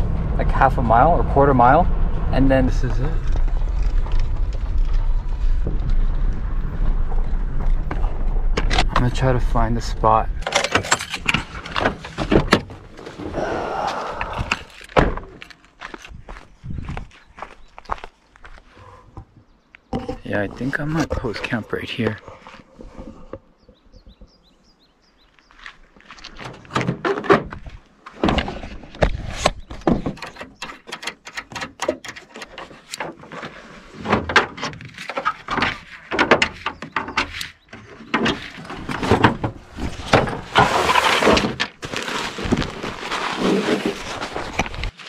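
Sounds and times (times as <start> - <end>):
knocks and thunks: 14.9 - 15.4, 26.4 - 30.6
tent fabric rustling: 39.6 - 45.0.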